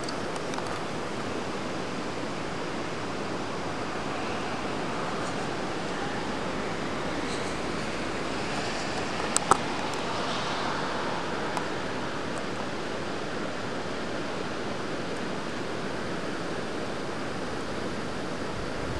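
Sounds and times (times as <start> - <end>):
rushing floodwater roar: 0.0 - 18.9.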